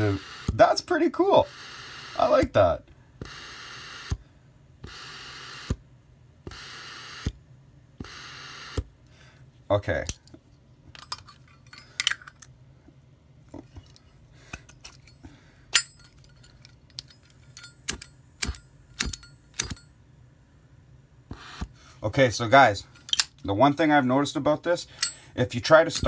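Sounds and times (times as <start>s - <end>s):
metal lighter clicks and clinks: 17.0s - 19.9s.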